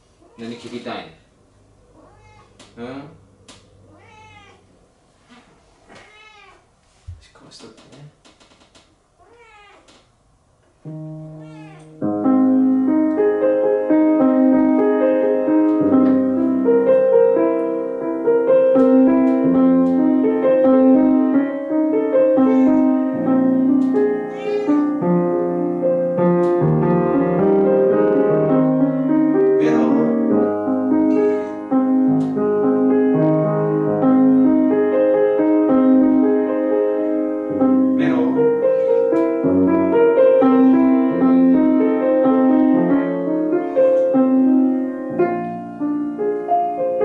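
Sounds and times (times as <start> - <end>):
grand piano playing chords and melody: 10.8 - 47.0.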